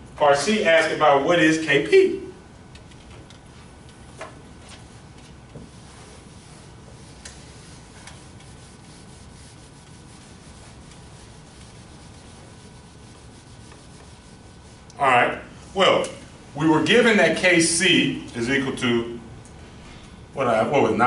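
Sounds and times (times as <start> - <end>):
eraser rubbing on whiteboard: 5.6 - 14.9.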